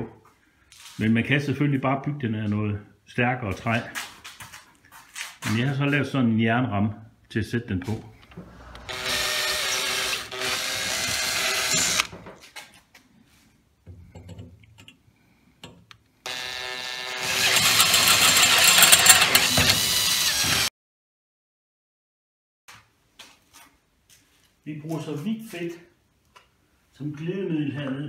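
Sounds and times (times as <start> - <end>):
cordless drill boring into steel: 8.3 - 12.1, 16.3 - 20.7.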